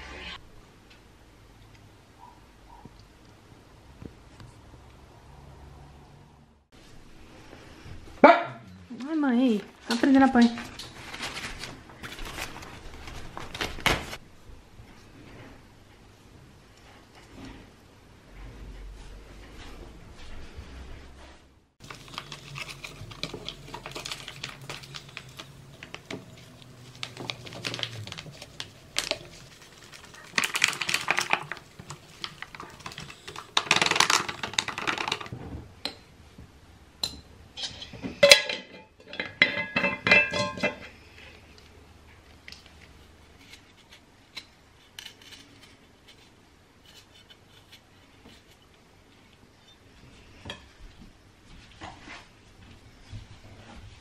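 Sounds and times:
foil bag rustling: 0:09.6 - 0:14.2, 0:21.8 - 0:35.3
granules poured into glass jar: 0:26.9 - 0:35.3
glass and cutlery clinking: 0:37.1 - 0:40.8.

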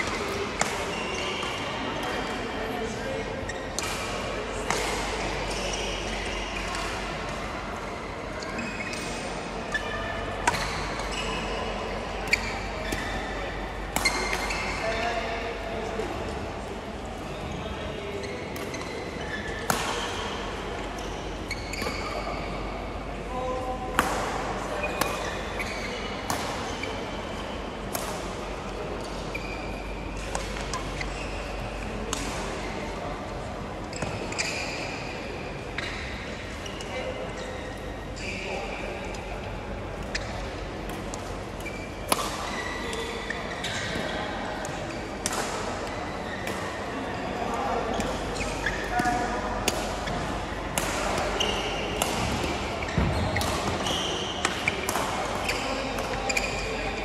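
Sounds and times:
court shoes squeaking: 0:00.0 - 0:16.4, 0:17.3 - 0:57.0
sports hall background: 0:00.0 - 0:57.0
racket hitting shuttlecock: 0:19.7 - 0:20.2, 0:25.0 - 0:25.3, 0:40.9 - 0:43.1, 0:48.9 - 0:56.6
sneaker squeaks on court: 0:21.0 - 0:22.5, 0:33.9 - 0:35.0, 0:41.6 - 0:44.3, 0:50.8 - 0:57.0.

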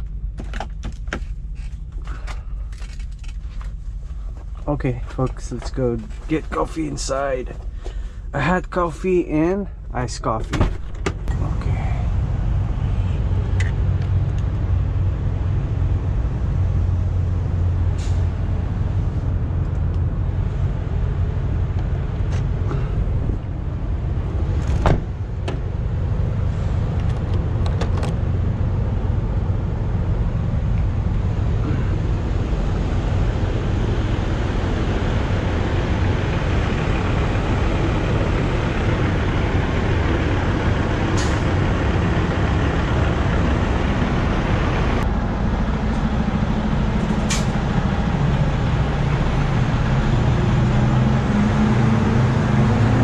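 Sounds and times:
diesel truck engines idling: 0:00.0 - 0:10.4, 0:11.1 - 0:53.0
truck door shutting: 0:10.4 - 0:11.4, 0:24.6 - 0:25.7.

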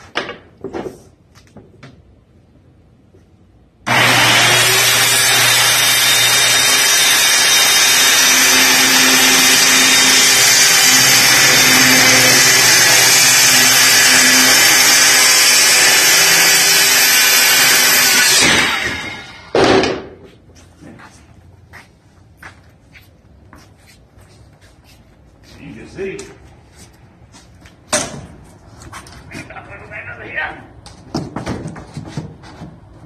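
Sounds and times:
circular saw cutting plywood: 0:03.9 - 0:19.6.

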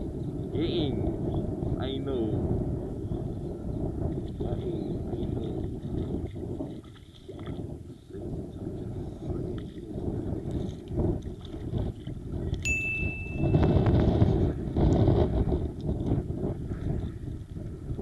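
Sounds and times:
wind buffeting microphone: 0:00.0 - 0:18.0
water sloshing against boat: 0:04.0 - 0:14.8, 0:15.5 - 0:18.0
short high beep: 0:12.7 - 0:13.8.

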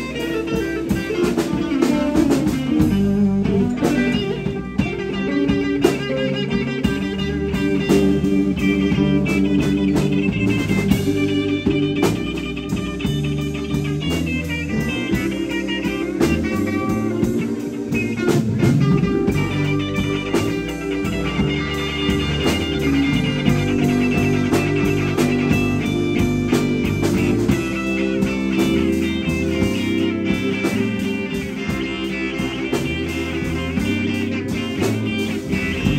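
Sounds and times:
bass guitar: 0:00.0 - 0:35.9
drum kit: 0:00.0 - 0:35.9
electric guitar: 0:00.0 - 0:35.9.

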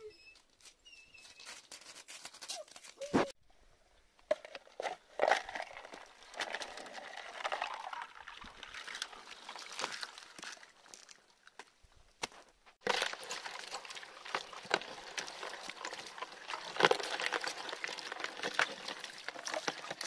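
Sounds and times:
ice cracking: 0:04.3 - 0:11.6, 0:12.8 - 0:20.0
ice shards crunching: 0:04.4 - 0:11.6, 0:12.8 - 0:20.0
water sloshing: 0:12.8 - 0:20.0.

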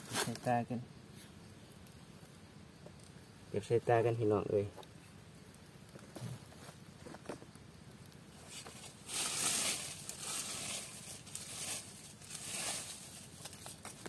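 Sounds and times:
basket rustling: 0:08.5 - 0:14.0.

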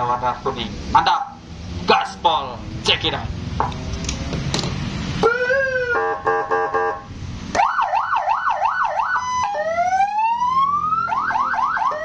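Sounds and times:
electronic siren changing tones: 0:05.2 - 0:12.0.

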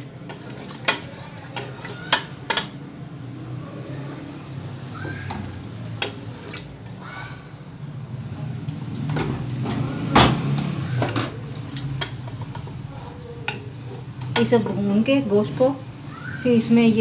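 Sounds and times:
wooden spoon scraping a pot: 0:00.0 - 0:03.0, 0:05.5 - 0:07.5, 0:11.3 - 0:16.0.

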